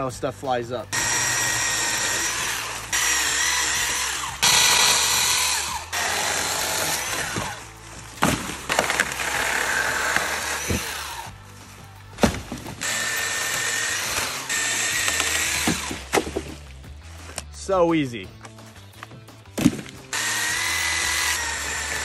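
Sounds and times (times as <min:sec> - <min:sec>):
electric chainsaw cutting branches: 0:00.9 - 0:11.4, 0:12.2 - 0:16.6, 0:19.6 - 0:22.0.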